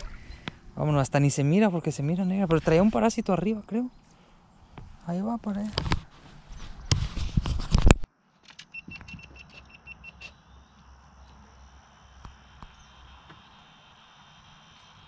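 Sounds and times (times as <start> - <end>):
camera handling rubbing and knocking: 5.6 - 8.1.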